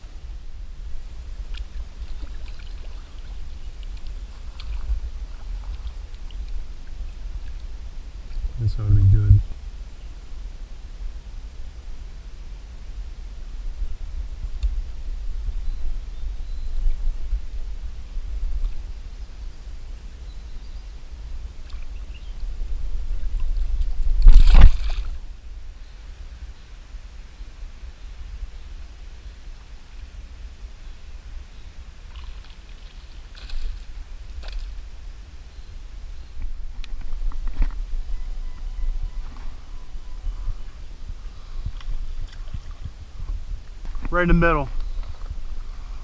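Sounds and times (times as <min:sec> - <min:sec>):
low steady rumble: 0:00.0 - 0:26.1
small splashes: 0:01.5 - 0:06.6, 0:23.9 - 0:25.2, 0:32.0 - 0:34.8
low rumble: 0:04.5 - 0:09.8
fish thrashing in water: 0:24.1 - 0:25.2
loud splash: 0:24.2 - 0:25.2.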